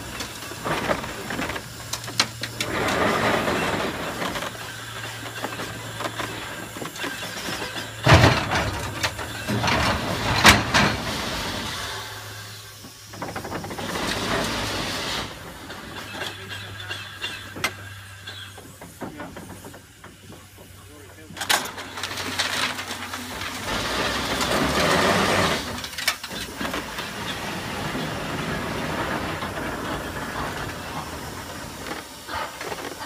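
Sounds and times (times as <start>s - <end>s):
machinery clattering: 0.0s - 12.2s, 13.2s - 19.8s, 21.1s - 33.0s
steam hissing: 0.0s - 33.0s
loud metallic clanks: 7.0s - 11.9s.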